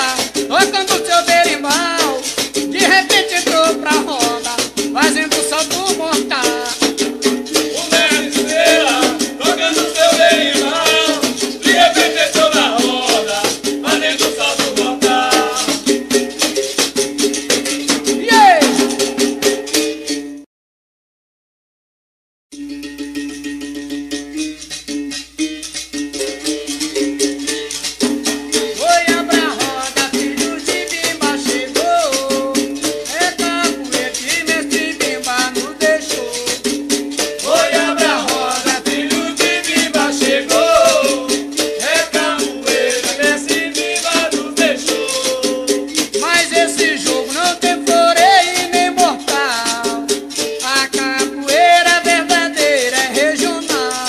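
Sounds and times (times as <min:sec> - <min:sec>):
person singing: 0:00.0 - 0:06.9, 0:07.7 - 0:15.9, 0:18.2 - 0:19.0, 0:28.8 - 0:36.7, 0:37.4 - 0:54.0
rattling shaker: 0:00.0 - 0:20.1, 0:23.1 - 0:54.0.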